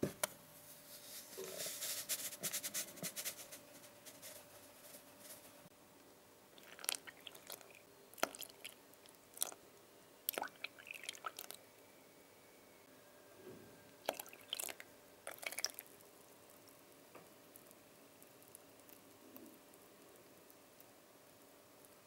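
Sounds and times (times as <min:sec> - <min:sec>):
milk pouring into bowl: 0:06.6 - 0:09.6, 0:10.3 - 0:11.6, 0:14.0 - 0:16.1.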